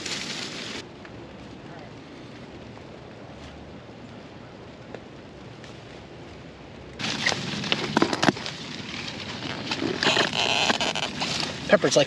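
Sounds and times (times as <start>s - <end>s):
plant leaves rustling and snapping: 0.0s - 1.6s, 6.9s - 12.0s.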